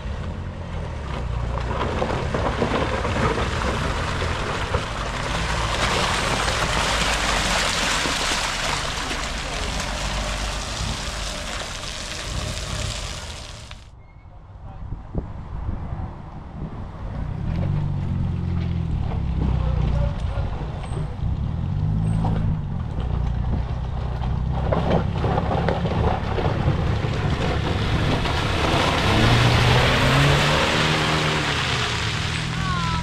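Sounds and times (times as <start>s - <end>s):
wheels churning mud: 0.0s - 13.9s, 18.4s - 33.0s
car engine revving: 1.1s - 13.8s, 24.2s - 33.0s
rushing hiss: 9.8s - 13.8s.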